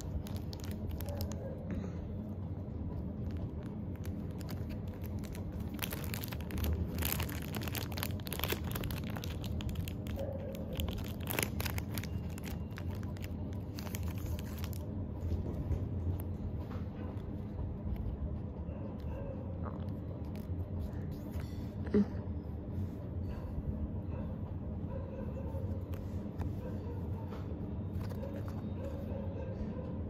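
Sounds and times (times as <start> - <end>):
foil wrapper tearing and crinkling: 0.0 - 1.5, 3.2 - 14.9
low hum: 0.0 - 30.0.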